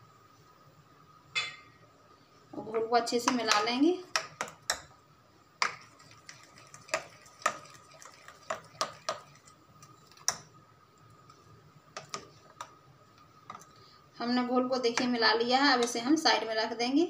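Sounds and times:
spoon stirring thick batter: 3.1s - 13.9s.

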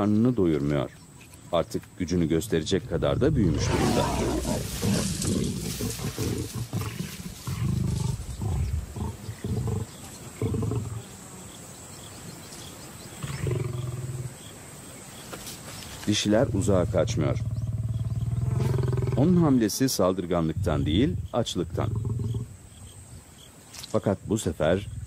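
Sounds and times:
lions growling and snarling: 2.4s - 11.2s, 13.1s - 14.4s, 16.4s - 19.6s, 21.6s - 22.6s.

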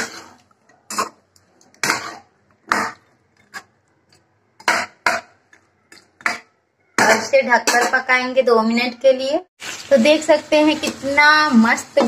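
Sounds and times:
metal spatula scraping a pan: 0.0s - 3.8s.

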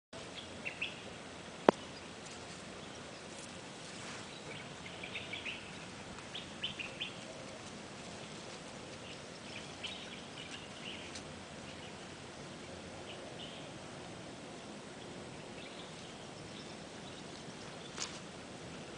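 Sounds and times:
small birds chirping: 0.2s - 13.8s, 14.5s - 18.9s.

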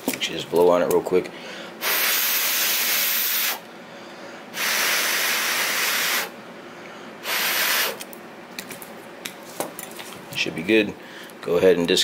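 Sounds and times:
person blowing air: 1.8s - 3.7s, 4.5s - 6.4s, 7.2s - 8.0s.

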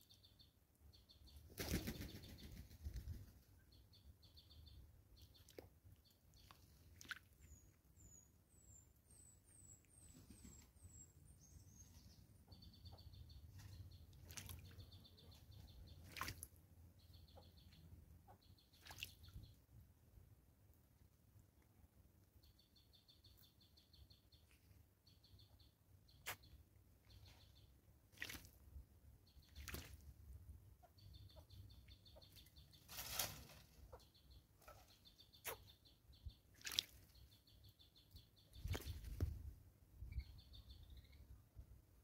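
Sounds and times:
small birds chirping: 0.0s - 42.0s
bird splashing in water: 6.4s - 7.4s, 14.2s - 14.8s, 16.0s - 16.6s, 18.8s - 19.3s, 28.1s - 28.6s, 29.5s - 30.0s, 36.5s - 37.1s, 38.7s - 39.3s.

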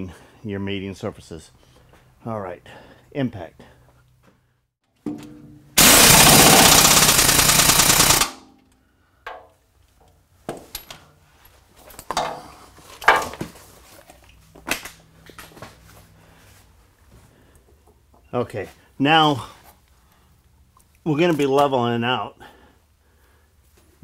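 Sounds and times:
impact wrench hammering: 5.8s - 8.6s.

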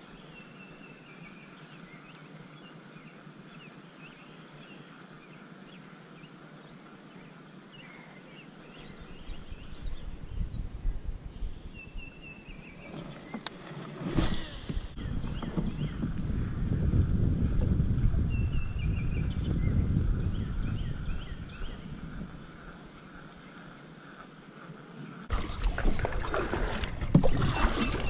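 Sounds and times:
small birds chirping: 0.0s - 13.6s, 14.8s - 25.3s
wind rumble on microphone: 8.8s - 13.1s, 14.2s - 22.9s, 25.3s - 28.0s.

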